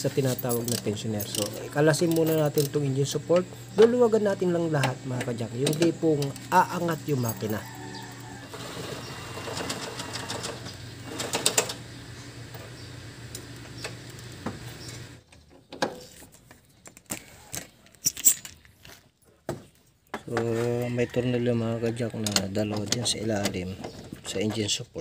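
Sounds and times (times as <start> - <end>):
steady low hum: 0.0 - 15.2
ratchet wrench clicking: 0.7 - 2.8.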